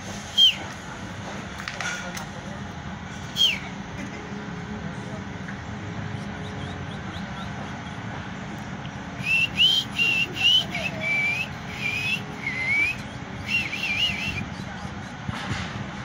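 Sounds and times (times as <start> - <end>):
bird whistling: 0.3 - 0.6, 3.3 - 3.7, 6.2 - 8.0, 9.2 - 14.9.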